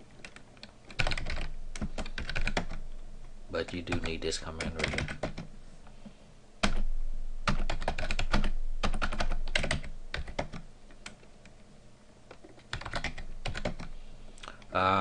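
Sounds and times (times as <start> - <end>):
typing on computer keyboard: 0.2 - 2.8, 3.6 - 5.5, 7.5 - 11.2, 12.4 - 13.9.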